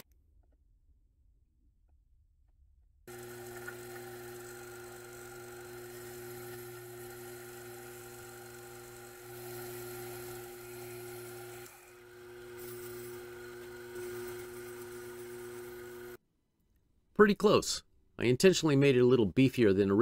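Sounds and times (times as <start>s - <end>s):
lathe motor whine: 3.1s - 16.2s.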